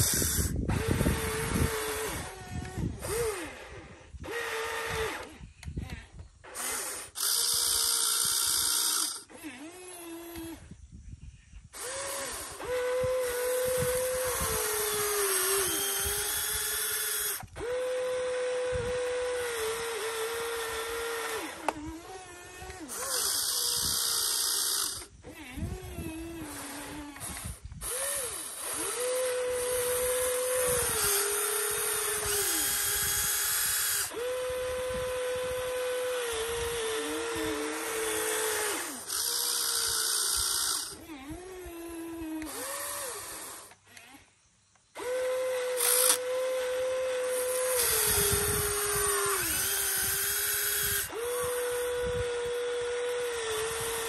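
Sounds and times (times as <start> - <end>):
small electric motors whining: 0.0 - 54.0.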